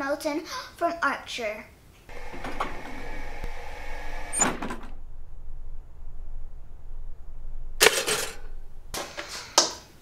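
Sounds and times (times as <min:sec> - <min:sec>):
loud mechanical clunk: 0:02.1 - 0:05.6, 0:07.8 - 0:09.0
low hum: 0:02.1 - 0:09.0
mechanical whirr: 0:02.1 - 0:09.0.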